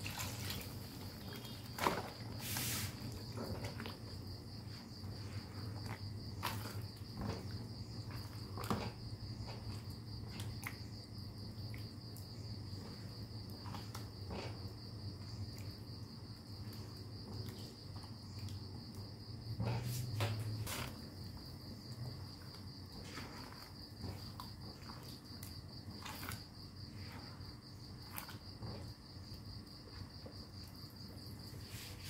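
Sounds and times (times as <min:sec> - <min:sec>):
spatula scraping wok: 0:00.3 - 0:03.8, 0:12.8 - 0:14.8, 0:19.5 - 0:21.1.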